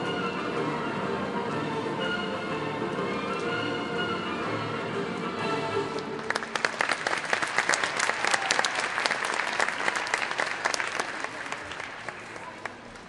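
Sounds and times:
orchestral music: 0:00.0 - 0:08.0
audience applauding: 0:06.0 - 0:13.0.

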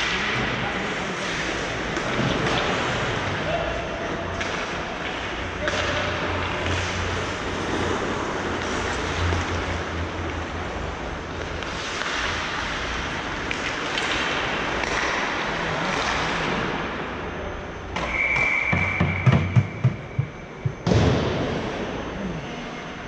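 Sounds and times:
hockey sticks and puck clacking: 0:04.4 - 0:10.5, 0:11.3 - 0:16.8, 0:18.0 - 0:20.3.

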